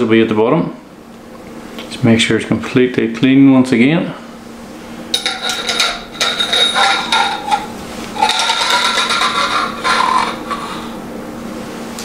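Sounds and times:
spring coils scraping in metal tube: 0:05.2 - 0:11.0.

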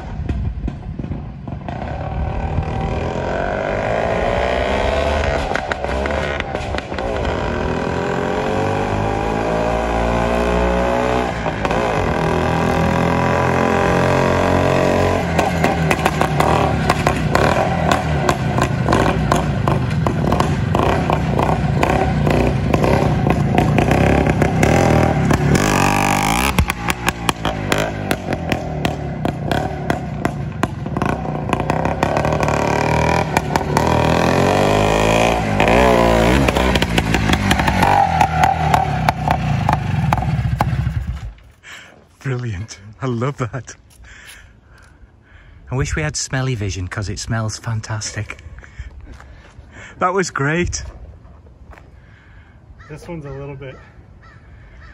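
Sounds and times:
crackling popping exhaust: 0:00.0 - 0:02.0, 0:15.3 - 0:34.3, 0:35.4 - 0:52.1
two-stroke motorcycle engine revving: 0:00.6 - 0:41.3.

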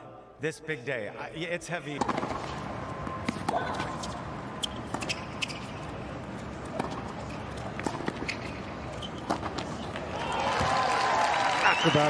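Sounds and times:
background noise: 0:00.0 - 0:12.0
tennis ball struck by racquets: 0:02.0 - 0:10.7.

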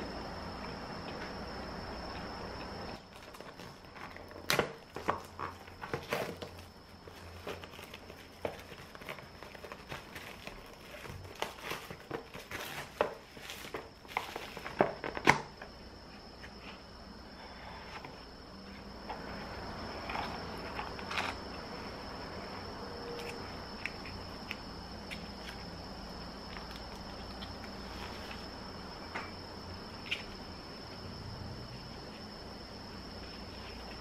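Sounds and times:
plastic film crinkling: 0:03.0 - 0:15.4
plastic film snapping: 0:03.1 - 0:06.6.

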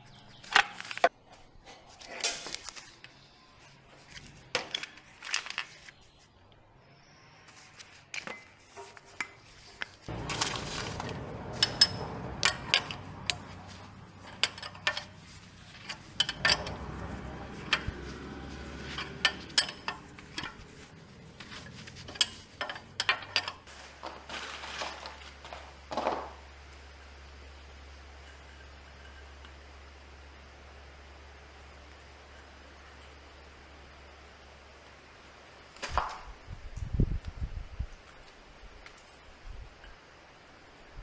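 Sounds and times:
metal tools clicking and clinking: 0:10.1 - 0:23.7.

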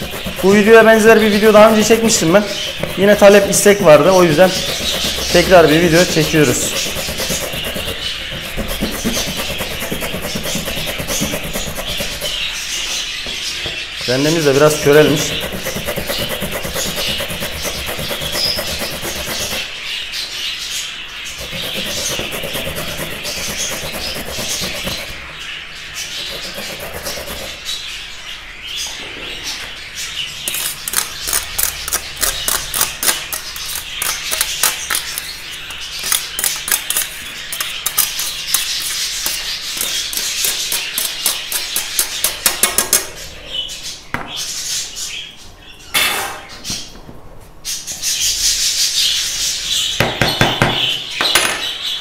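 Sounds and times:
carrot scraping on metal grater: 0:00.0 - 0:12.5, 0:14.8 - 0:19.7, 0:21.4 - 0:25.2, 0:26.2 - 0:27.6, 0:30.5 - 0:42.5
fork scraping in a bowl: 0:00.0 - 0:12.5, 0:14.8 - 0:19.7, 0:21.4 - 0:25.2, 0:26.2 - 0:27.6, 0:30.5 - 0:43.0
budgerigars chirping: 0:00.0 - 0:46.9, 0:47.6 - 0:52.0.

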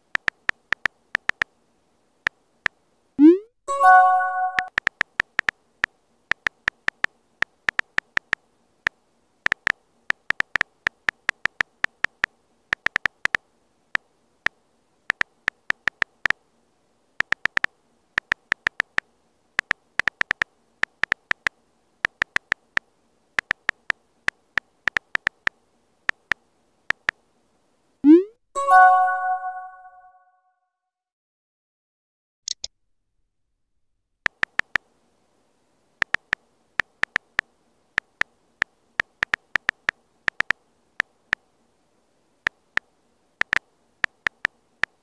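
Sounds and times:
phone keyboard key clicks: 0:00.2 - 0:01.5, 0:04.5 - 0:05.6, 0:06.3 - 0:08.4, 0:09.5 - 0:13.4, 0:15.1 - 0:16.4, 0:17.2 - 0:19.0, 0:19.6 - 0:22.8, 0:23.4 - 0:24.0, 0:24.9 - 0:25.5, 0:34.3 - 0:34.8, 0:36.0 - 0:37.4, 0:39.0 - 0:40.6, 0:42.8 - 0:45.0.

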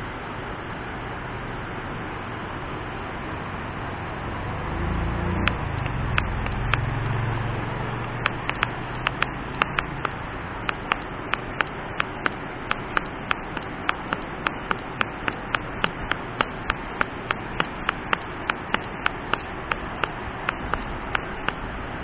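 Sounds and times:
steady rushing noise: 0:00.0 - 0:22.0
sharp regular clicks: 0:05.4 - 0:06.9, 0:08.0 - 0:21.7.

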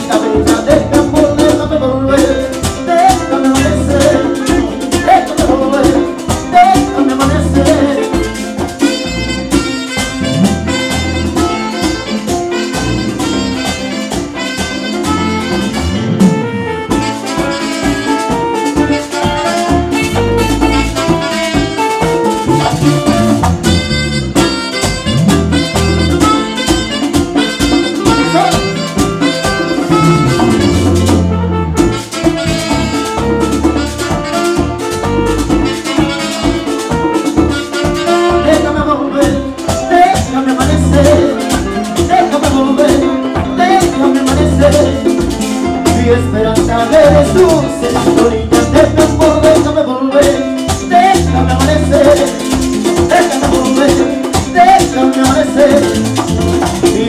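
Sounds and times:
latin band playing: 0:00.0 - 0:57.0
saxophone lines: 0:07.7 - 0:39.6.

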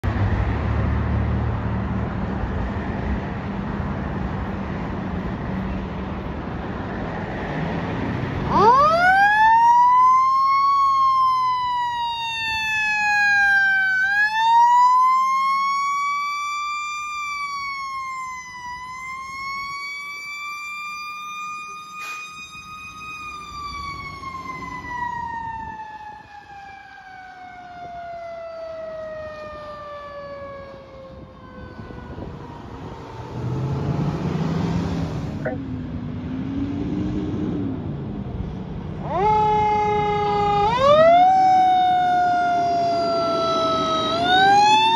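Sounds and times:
fire engine running: 0:00.1 - 0:36.4, 0:37.7 - 0:44.9
siren wailing: 0:08.4 - 0:35.9, 0:39.0 - 0:44.9.

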